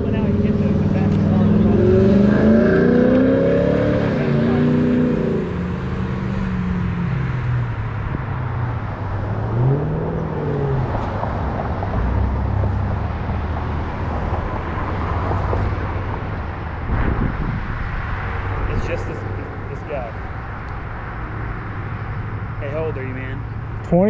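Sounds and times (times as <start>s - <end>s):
car engine idling: 0.0s - 2.3s
road traffic noise: 0.0s - 24.0s.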